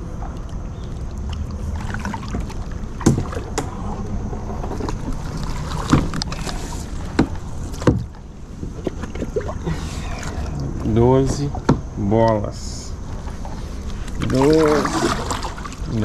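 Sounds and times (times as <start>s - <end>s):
water rumbling: 0.0s - 16.0s
paddle knocking on hull: 7.0s - 9.5s.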